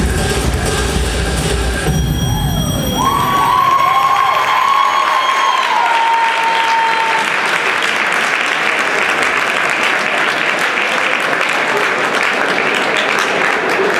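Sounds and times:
held tone: 1.8 - 4.1
audience applauding: 2.1 - 13.9.

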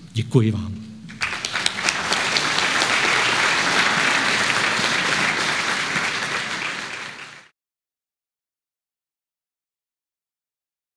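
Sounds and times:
audience applauding: 1.1 - 7.5.

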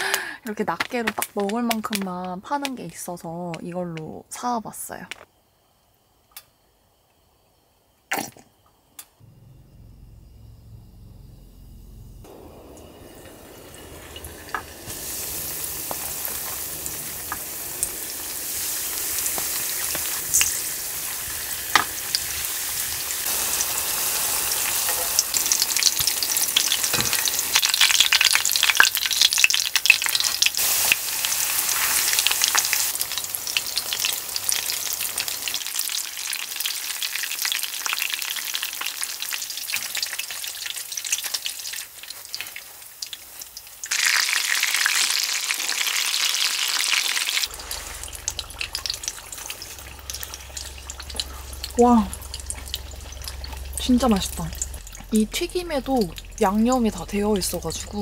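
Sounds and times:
shrimp sizzling in hot oil: 12.3 - 58.0.

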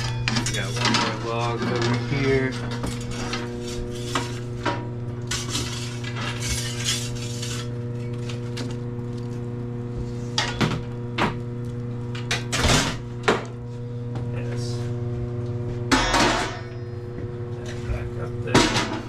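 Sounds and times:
fire rake scraping and clanking: 0.0 - 9.3
low hum: 0.0 - 19.0.

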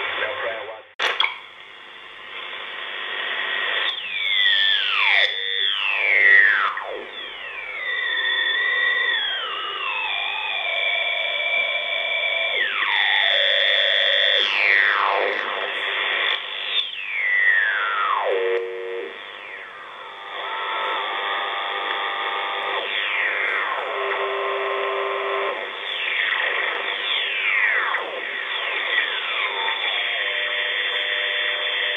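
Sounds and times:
radio band noise: 0.0 - 1.2, 12.7 - 31.9
radio whistling tones falling in pitch: 3.6 - 31.9
steady radio beat tones: 13.3 - 31.9.

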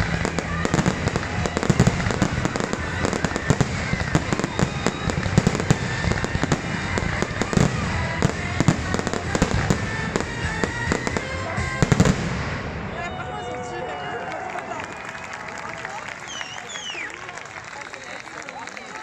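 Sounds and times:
fireworks bursting: 0.0 - 13.2.

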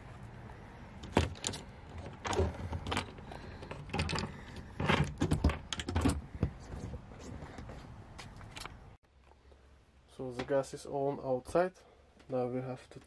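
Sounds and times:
clicks knocks and rattles: 1.0 - 6.9.

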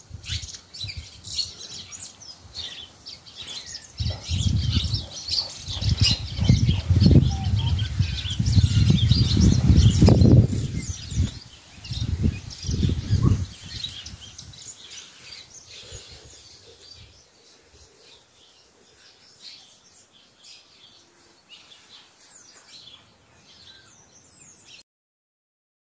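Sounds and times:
small birds chirping: 0.0 - 24.8
low thumps on microphone: 5.7 - 11.4.

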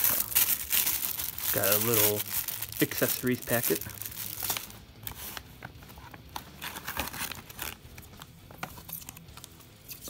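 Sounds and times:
foil packet crinkling: 0.0 - 5.3
plastic pouch rustling: 0.0 - 9.0.

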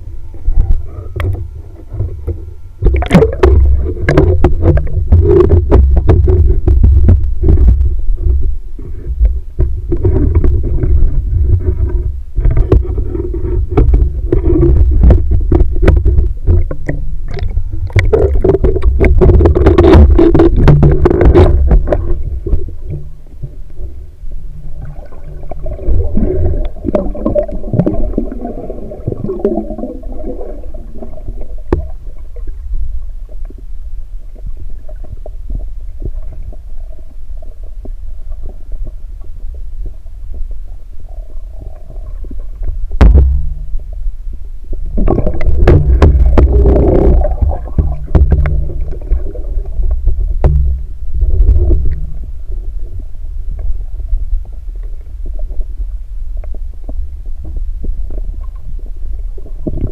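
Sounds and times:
muffled underwater rumble: 0.0 - 59.9
bursts of water movement: 0.8 - 33.4, 44.7 - 55.8
sharp knock: 43.0 - 43.6.

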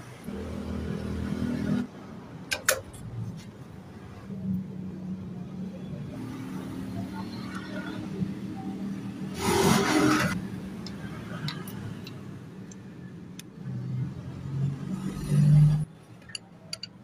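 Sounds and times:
small motorcycle engine revving: 9.2 - 10.4.

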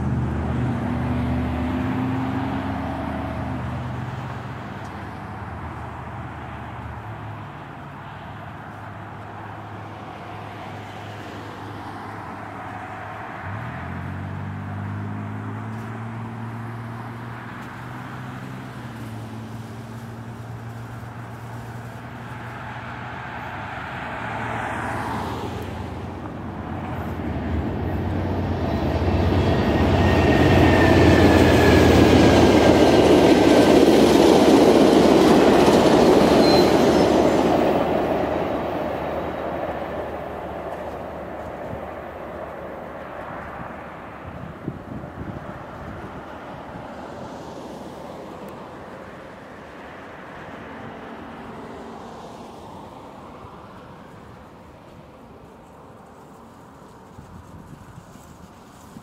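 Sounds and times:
diesel train engine: 0.0 - 59.0
train coaches rattling past: 16.8 - 59.0
wheel squeal: 35.6 - 37.4.

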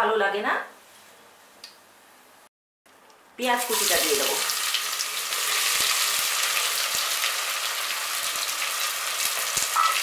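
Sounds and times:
onions sizzling in oil: 3.6 - 10.0.

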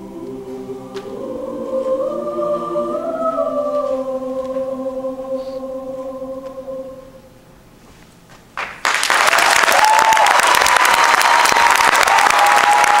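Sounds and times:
choir holding a chord: 0.0 - 7.4
audience applause: 8.6 - 13.0.

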